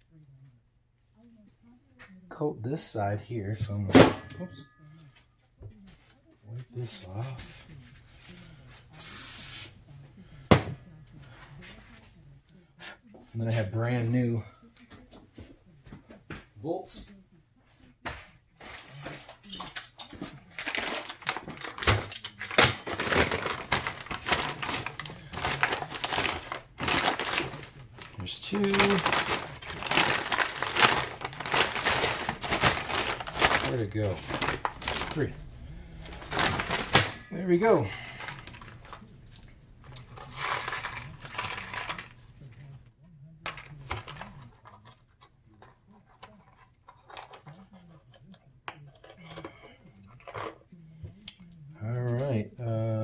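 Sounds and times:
faint low hum: 0:09.8 - 0:53.0
metal bolts clinking: 0:19.1 - 0:40.6
gloves rustling: 0:20.4 - 0:42.5
paper bag crinkling: 0:22.5 - 0:42.2.

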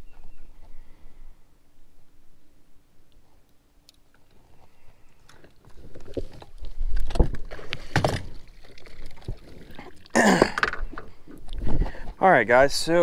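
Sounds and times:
water splashing: 0:06.0 - 0:11.5.

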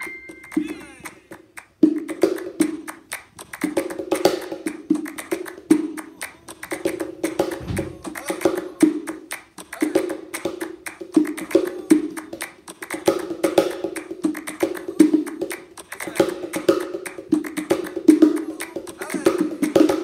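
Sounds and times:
cajon hand slaps: 0:00.6 - 0:20.0
deep low thump: 0:07.6 - 0:08.2.

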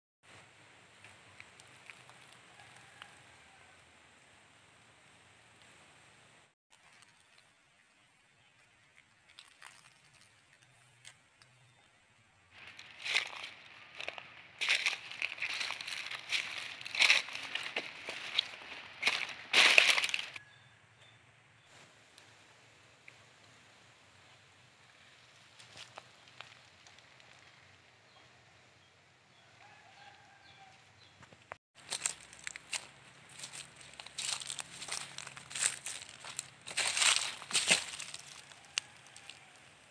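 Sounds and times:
distant rooster crowing: 0:02.4 - 0:03.9, 0:29.5 - 0:31.0, 0:35.6 - 0:39.9
footsteps crunching dry leaves: 0:06.7 - 0:07.4, 0:09.0 - 0:11.2, 0:12.5 - 0:20.4, 0:31.8 - 0:39.8.

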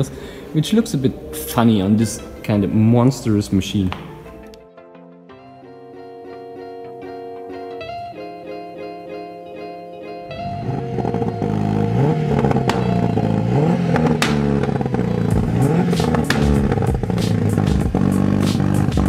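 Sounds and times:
car engine revving: 0:10.2 - 0:19.0
exhaust pops and crackles: 0:11.0 - 0:19.0.

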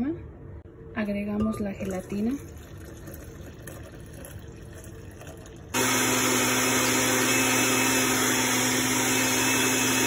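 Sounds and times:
blender motor hum: 0:05.7 - 0:10.0.

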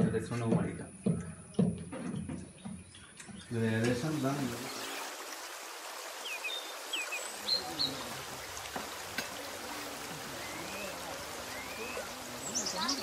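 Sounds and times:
steady hiss: 0:03.5 - 0:13.0
faint voices: 0:07.4 - 0:13.0
high bird chirps: 0:10.4 - 0:13.0.

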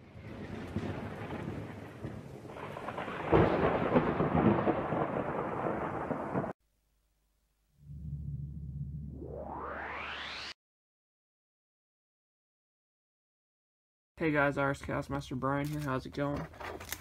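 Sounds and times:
thunder rumble and crack: 0:00.0 - 0:06.6.

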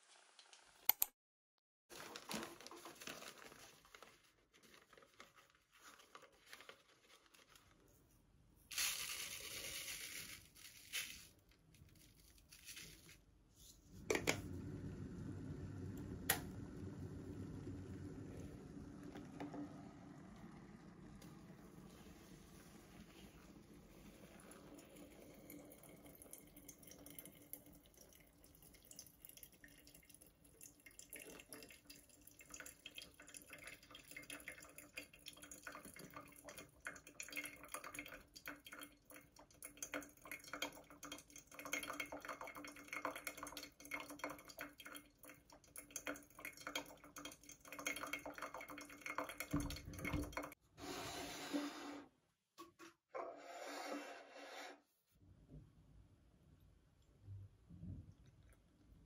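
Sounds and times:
coffee trickling and dripping: 0:11.3 - 0:50.6, 0:56.5 - 0:59.0
water pouring from kettle: 0:13.8 - 0:50.6.

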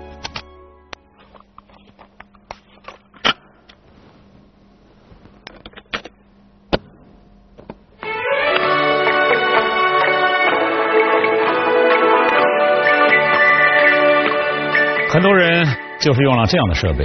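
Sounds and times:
music playing: 0:00.0 - 0:01.2, 0:08.0 - 0:17.0.

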